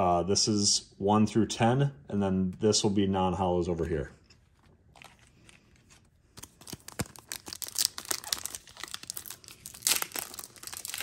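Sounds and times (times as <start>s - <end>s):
foil wrapper crinkling: 4.9s - 11.0s
foil wrapper tearing: 6.3s - 11.0s.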